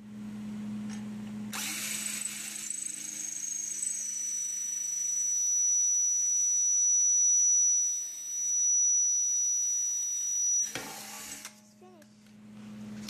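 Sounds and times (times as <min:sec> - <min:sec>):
cordless drill whining: 0:01.5 - 0:11.5.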